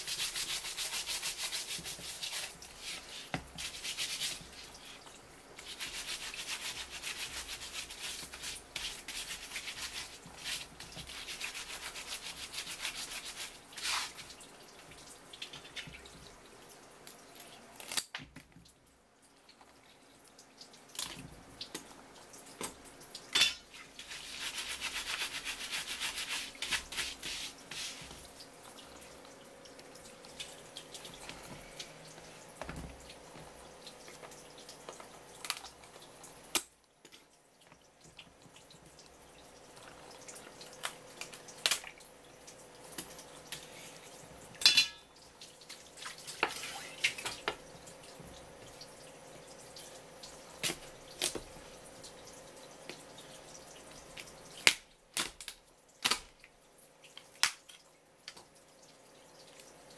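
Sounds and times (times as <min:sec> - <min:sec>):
tap water running and splashing: 0:00.0 - 0:59.9.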